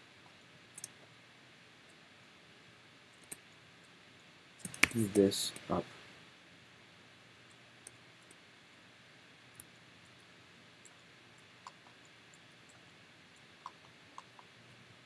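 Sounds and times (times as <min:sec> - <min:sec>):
computer mouse clicks: 0:00.2 - 0:01.1, 0:03.2 - 0:03.4, 0:04.6 - 0:05.7, 0:07.5 - 0:08.4, 0:09.5 - 0:10.2, 0:10.8 - 0:12.9, 0:13.6 - 0:14.6.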